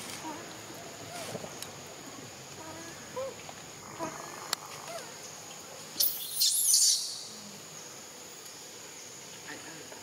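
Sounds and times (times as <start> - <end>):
faint monkey squeaks: 6.0 - 7.2
shrill monkey scream: 6.0 - 7.3.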